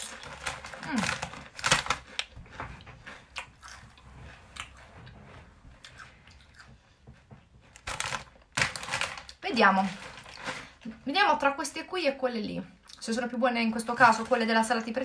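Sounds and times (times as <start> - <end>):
person chewing crunchy chips: 0.0 - 2.4, 3.0 - 4.8, 5.8 - 6.8.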